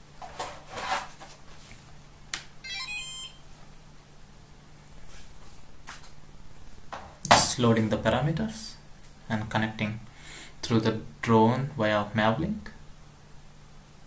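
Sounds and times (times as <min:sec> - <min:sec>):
low steady hum: 0:00.0 - 0:14.0
electronic beeps: 0:02.6 - 0:03.4.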